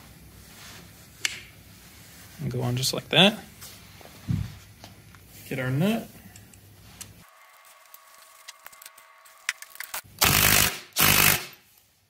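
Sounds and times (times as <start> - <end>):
impact driver running: 7.3 - 11.6.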